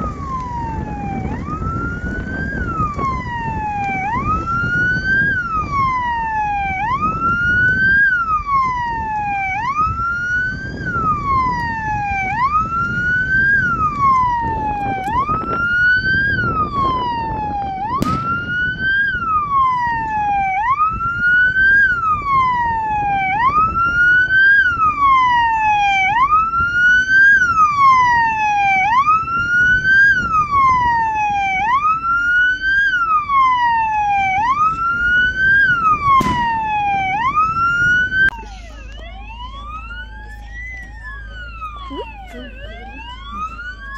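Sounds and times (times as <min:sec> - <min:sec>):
vehicle siren wailing: 0:00.0 - 0:43.9
sharp crack: 0:18.0 - 0:19.3, 0:36.1 - 0:37.4
low background rumble: 0:28.8 - 0:43.9.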